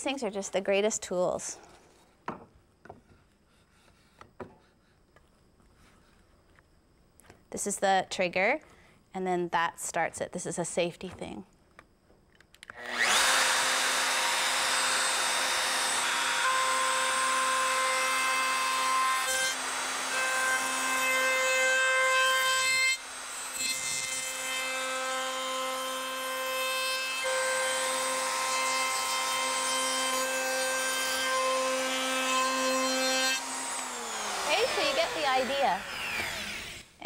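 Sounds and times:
router whining while cutting wood: 0:12.8 - 0:36.9.

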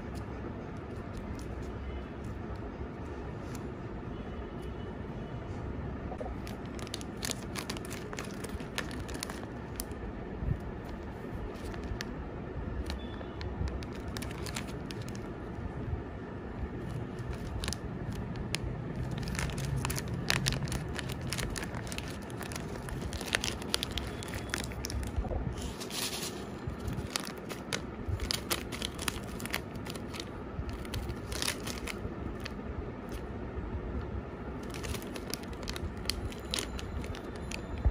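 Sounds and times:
plastic packets crinkling: 0:06.2 - 0:10.0, 0:10.8 - 0:12.1, 0:12.8 - 0:15.4, 0:16.8 - 0:33.2, 0:34.6 - 0:37.8.

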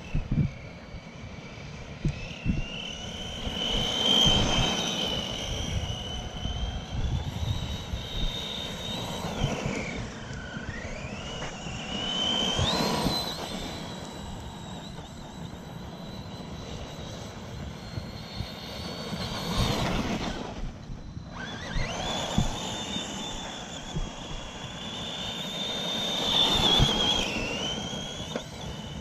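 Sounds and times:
electric motor whining: 0:00.0 - 0:29.0.

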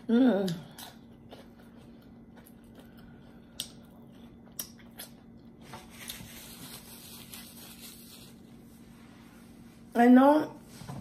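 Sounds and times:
chewing with mouth closed: 0:00.0 - 0:06.3.

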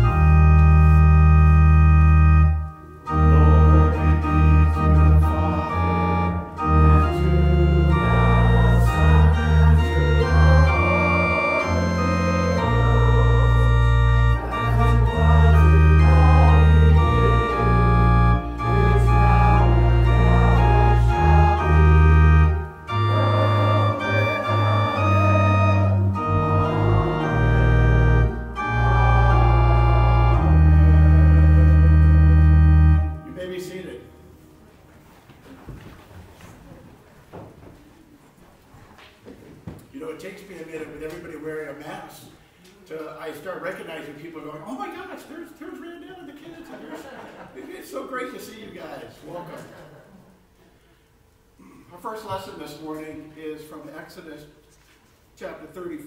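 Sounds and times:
church organ chords: 0:00.0 - 0:34.6.

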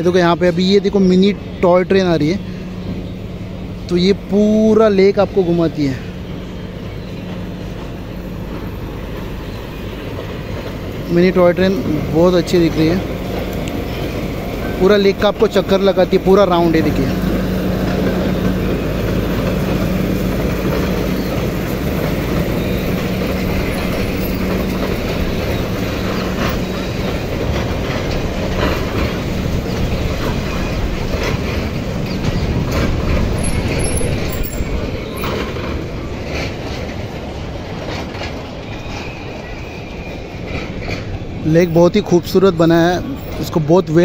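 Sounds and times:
carriages rattling along rails: 0:00.0 - 0:44.0
toy locomotive humming: 0:02.1 - 0:35.5.

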